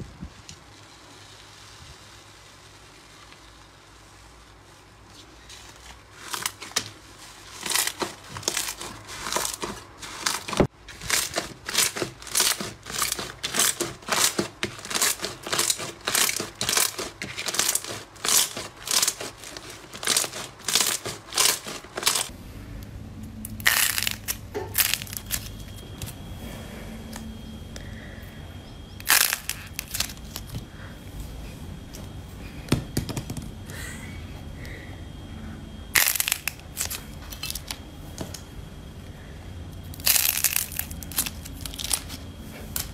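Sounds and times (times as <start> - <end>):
slime squelching and crackling: 0.6 - 22.3, 23.5 - 26.1, 39.8 - 42.9
steady low background noise: 22.2 - 42.9.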